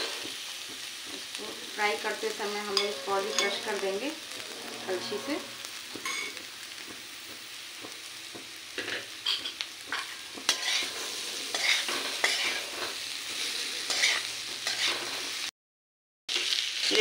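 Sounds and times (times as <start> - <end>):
food sizzling in oil: 0.0 - 15.5, 16.3 - 17.0
metal ladle scraping pan: 2.5 - 6.4, 8.8 - 15.4.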